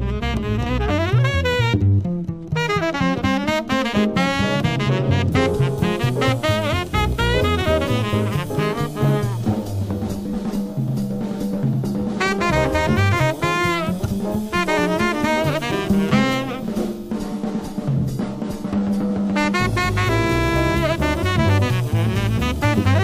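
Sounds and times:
tenor saxophone: 0.0 - 9.8, 12.2 - 17.1, 19.4 - 23.0
bass line: 0.0 - 16.9, 19.3 - 23.0
drum kit: 0.0 - 23.0.

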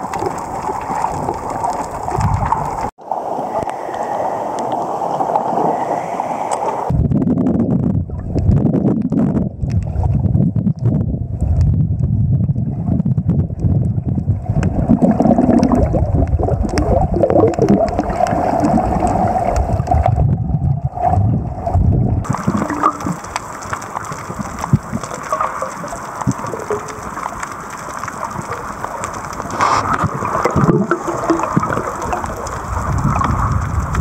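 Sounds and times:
underwater clicks and crackles: 0.0 - 2.9, 3.6 - 34.0
underwater rumble of moving water: 0.0 - 34.0
underwater hiss: 3.1 - 6.9, 29.3 - 33.2.

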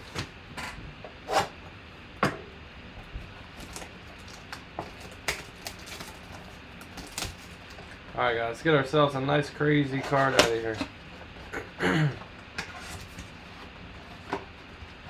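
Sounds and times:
plastic shrink-wrap crinkling: 3.6 - 7.9.

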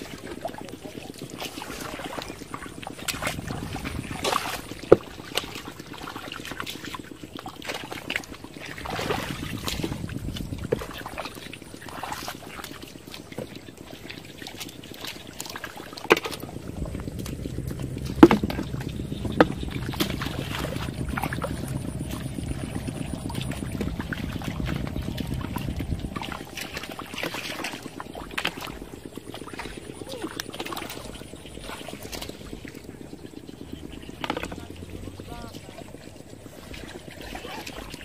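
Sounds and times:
splashing in shallow muddy water: 0.0 - 38.0.

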